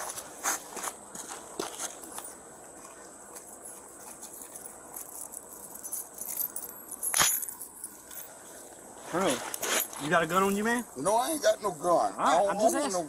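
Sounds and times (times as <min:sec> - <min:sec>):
metallic jingling and rattling: 0:03.5 - 0:08.4.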